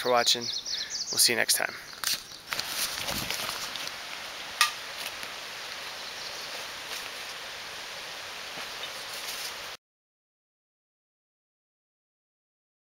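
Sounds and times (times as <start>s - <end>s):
steady woodland hiss: 0.0s - 9.8s
faint rustles: 1.9s - 4.2s, 8.5s - 9.7s.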